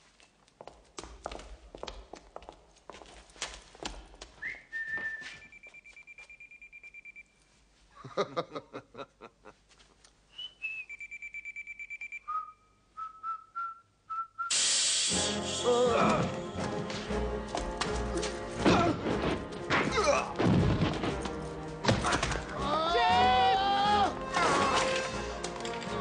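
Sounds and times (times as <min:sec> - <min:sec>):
long whistled notes: 0:10.3 - 0:15.8.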